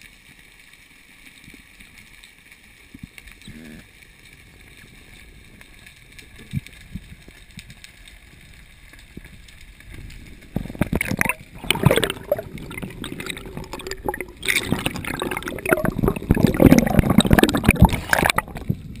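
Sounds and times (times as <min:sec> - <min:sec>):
water gurgling and rushing: 0:10.1 - 0:19.0.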